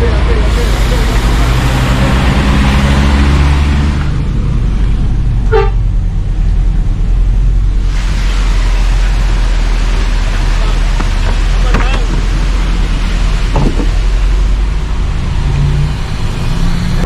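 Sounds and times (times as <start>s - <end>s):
bus diesel engine droning: 0.0s - 17.0s
short horn toot: 5.5s - 5.8s.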